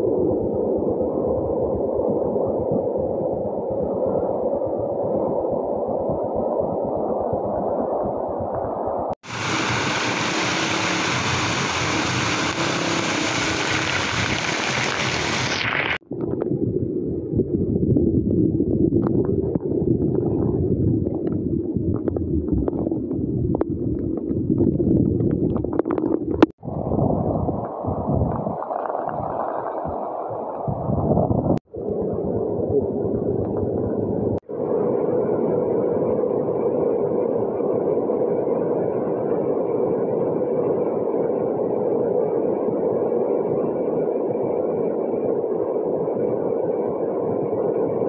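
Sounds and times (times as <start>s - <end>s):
floodwater rushing: 9.2s - 16.0s
heavy rain: 9.2s - 16.0s
scattered crackles: 9.5s - 16.5s, 19.0s - 26.5s.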